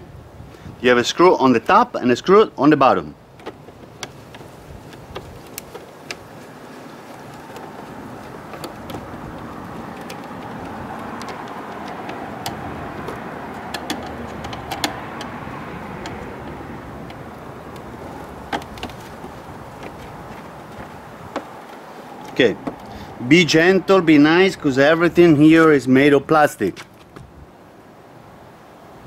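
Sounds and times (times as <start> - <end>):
road traffic hum: 0.0 - 29.0
screwdriver clicking on plastic: 7.1 - 20.2.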